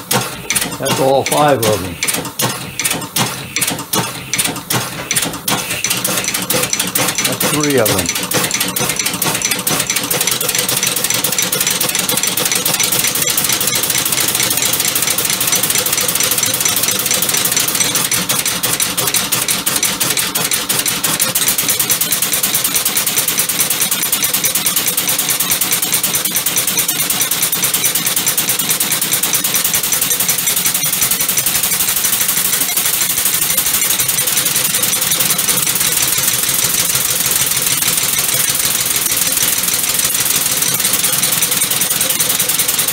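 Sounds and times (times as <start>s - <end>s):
compressed-air engine clattering: 0.0s - 42.9s.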